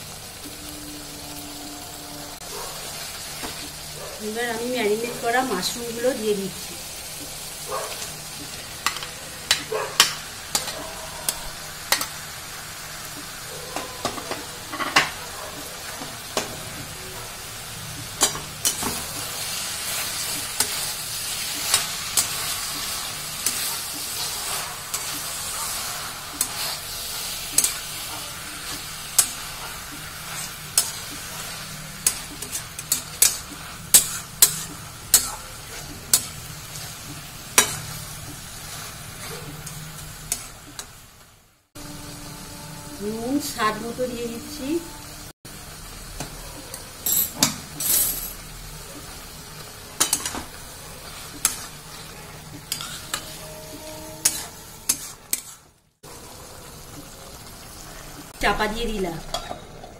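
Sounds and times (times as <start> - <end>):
mushrooms sizzling in a wok: 0.0 - 59.9
spatula clicking and scraping pan: 7.0 - 12.3, 17.9 - 41.0, 46.2 - 55.8.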